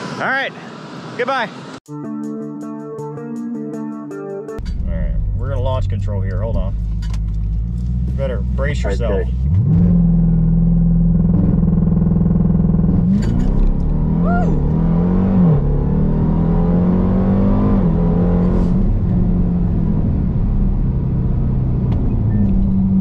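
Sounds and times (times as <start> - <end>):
car engine accelerating hard: 7.2 - 23.0.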